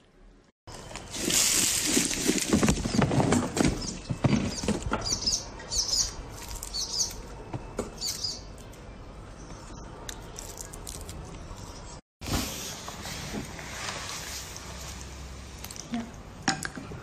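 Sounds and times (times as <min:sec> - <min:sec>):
small bird chirping: 0:03.8 - 0:07.3, 0:08.0 - 0:08.6.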